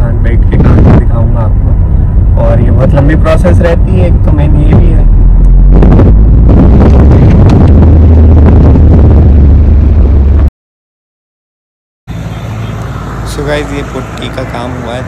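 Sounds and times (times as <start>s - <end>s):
car cabin low rumble: 0.0s - 10.5s.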